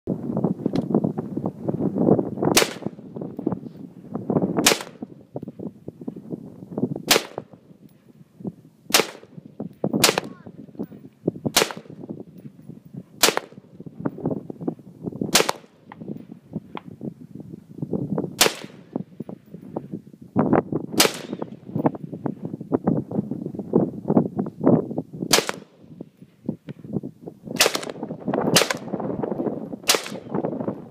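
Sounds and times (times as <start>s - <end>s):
wind buffeting microphone: 0.1s - 30.9s
rifle shots: 2.5s - 3.0s, 4.6s - 5.0s, 7.1s - 7.5s, 8.9s - 9.4s, 10.0s - 10.5s, 11.5s - 12.0s, 13.2s - 13.7s, 15.3s - 15.9s, 18.4s - 18.9s, 21.0s - 21.6s, 25.3s - 25.8s, 27.6s - 29.0s, 29.8s - 30.4s.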